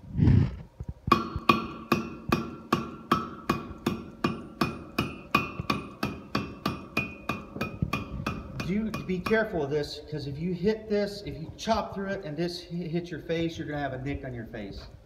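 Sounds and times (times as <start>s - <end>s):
hammer striking hot metal on anvil: 1.1s - 9.7s
ringing of steel: 1.1s - 9.7s.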